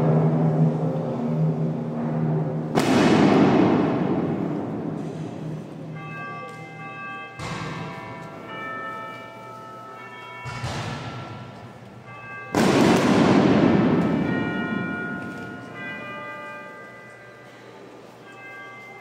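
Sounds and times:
bells ringing: 0.0 - 19.0
sudden bangs: 2.1 - 5.6, 12.4 - 15.9.

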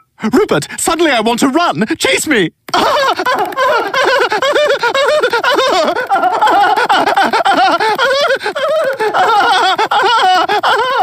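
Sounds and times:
cartoon toddler giggling and squealing: 2.7 - 11.0.

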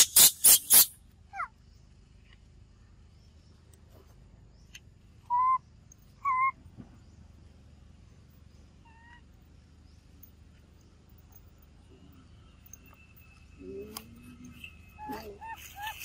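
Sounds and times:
baby monkey coo calls: 0.0 - 1.5, 13.6 - 16.0.

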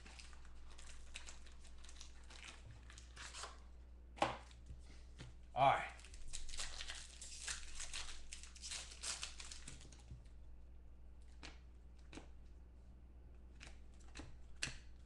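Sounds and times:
foil wrapper crinkling and tearing: 0.0 - 3.6, 6.0 - 10.1.

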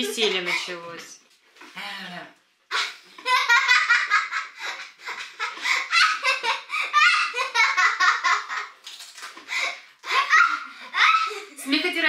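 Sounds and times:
girl giggling: 2.7 - 8.7, 9.5 - 11.6.

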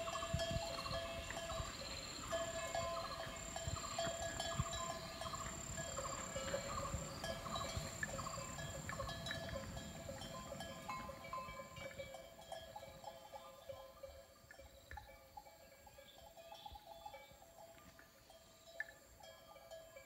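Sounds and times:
insect whine: 0.0 - 12.0
cattle bells clanking: 0.0 - 20.0.

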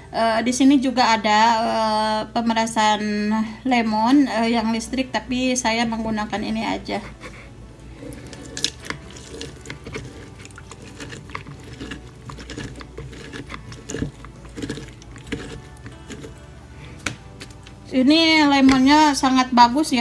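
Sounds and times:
lemon squelching on citrus reamer: 6.0 - 19.3
juice running into bowl: 7.9 - 17.7.

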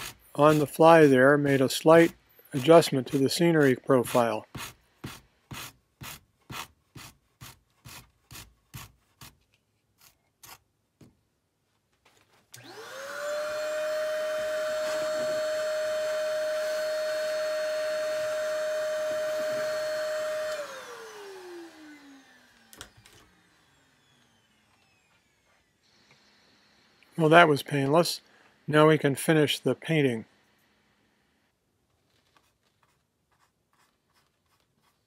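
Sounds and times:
rasp shaving: 0.0 - 10.7, 32.4 - 35.0
vacuum cleaner motor whining: 12.6 - 27.4.

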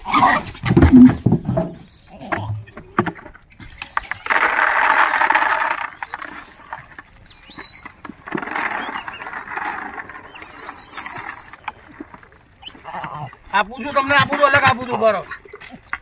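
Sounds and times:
plastic tub thumping down: 0.6 - 2.4.

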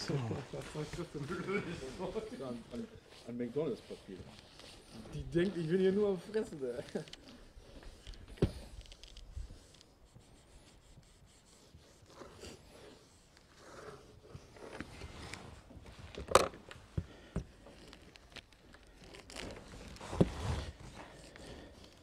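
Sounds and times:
iron rubbing over plastic film: 0.7 - 7.1
film scraping and crinkling: 3.7 - 9.9, 14.4 - 22.0.

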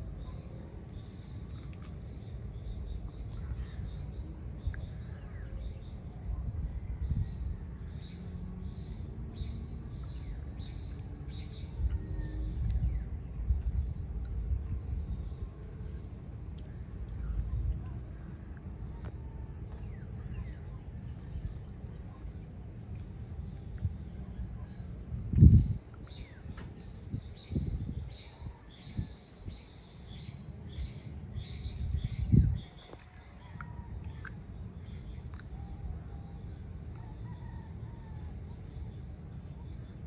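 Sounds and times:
insects buzzing: 0.0 - 40.0
low rumble: 2.5 - 22.2.

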